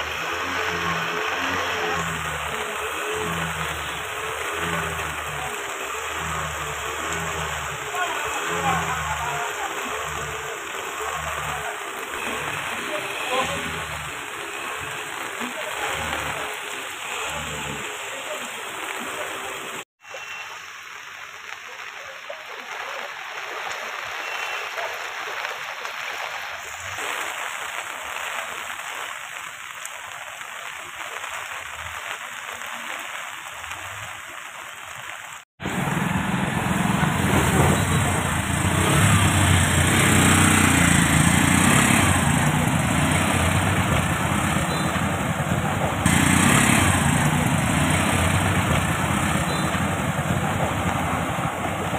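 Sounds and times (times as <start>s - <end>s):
motorcycle engine running: 0.0s - 18.0s, 35.6s - 51.9s
auto-rickshaw engine: 0.0s - 19.9s, 35.6s - 51.9s
steady rain: 0.0s - 51.9s.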